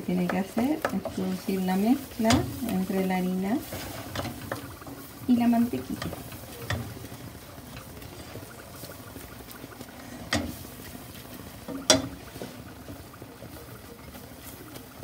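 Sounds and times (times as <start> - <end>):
faint sizzle: 0.0 - 15.0
spoon stirring and scraping saucepan: 0.0 - 15.0
spoon knocking against pan: 0.1 - 1.3, 2.2 - 2.6, 11.7 - 12.2.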